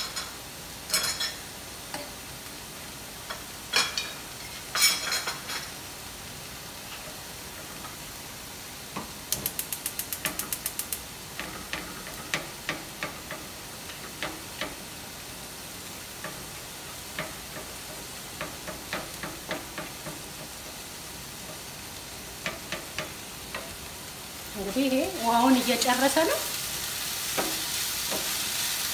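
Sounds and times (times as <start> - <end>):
meat sizzling in a frying pan: 0.0 - 28.9
utensil knocking against pan: 17.1 - 20.8, 22.4 - 23.7.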